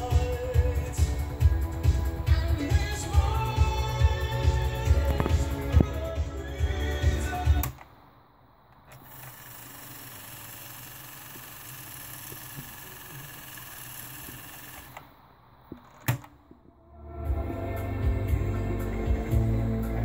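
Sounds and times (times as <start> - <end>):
music from cassette deck: 0.0 - 7.8
tape hiss: 0.0 - 20.0
cassette deck control click: 7.6 - 7.9.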